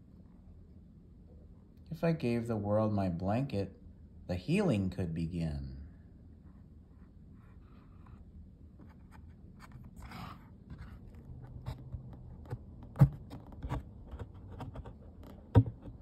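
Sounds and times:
paper scraping and rubbing: 8.8s - 12.1s.

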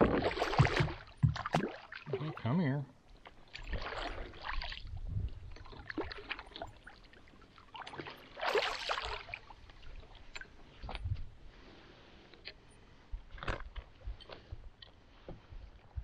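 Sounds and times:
water splashing: 0.0s - 11.0s.

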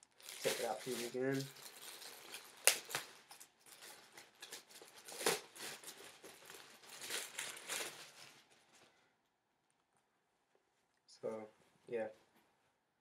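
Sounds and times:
plastic bag crinkling: 0.0s - 8.9s.

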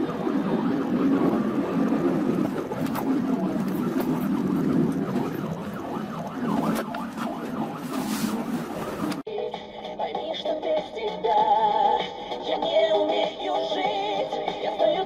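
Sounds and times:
ambulance siren wailing: 0.0s - 9.2s
car road and engine noise: 0.0s - 9.3s.

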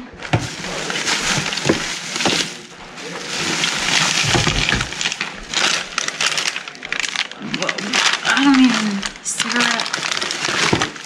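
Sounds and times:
plastic bag rustling: 0.0s - 11.0s
items knocking against cooler: 0.1s - 6.4s, 9.9s - 11.0s.

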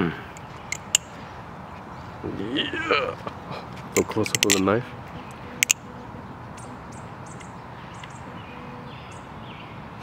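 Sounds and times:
butterfly knife clicks: 5.6s - 5.8s.

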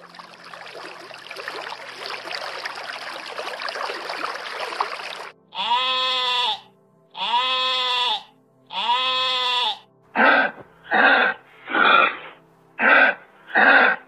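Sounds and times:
sheep bleating: 5.5s - 10.5s.

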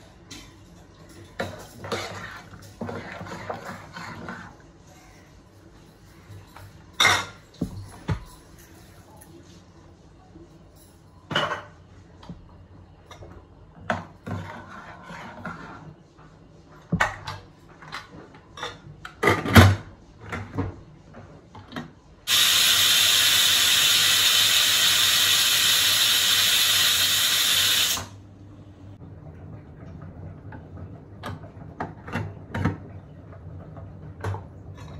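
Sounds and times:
steam hissing from pressure cooker: 22.3s - 28.1s.

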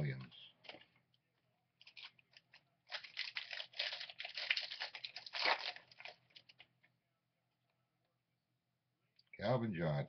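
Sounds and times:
wrapper crinkling being torn open: 1.8s - 6.7s.

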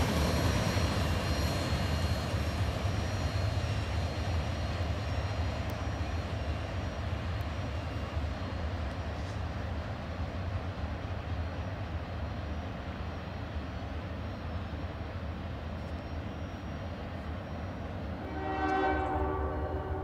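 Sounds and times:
train low rumble: 0.0s - 20.0s
locomotive air horn: 18.2s - 20.0s.

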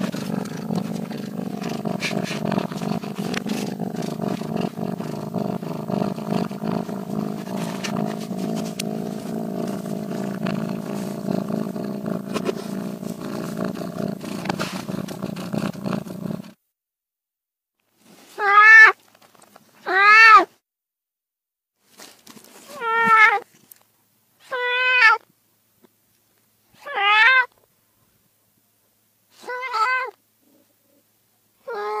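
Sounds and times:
cat purring: 0.0s - 16.6s.

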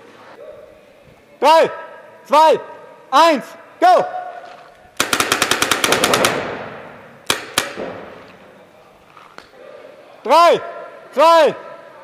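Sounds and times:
paintball marker shots echoing: 5.0s - 8.5s.

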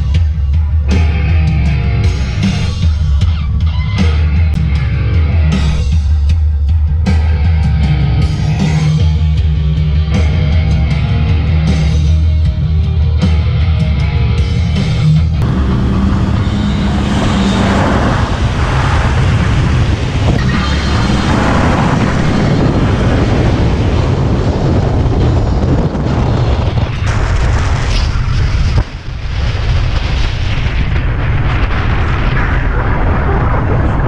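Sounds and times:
car road noise on gravel: 15.4s - 33.1s
wind buffeting microphone: 15.4s - 34.0s.

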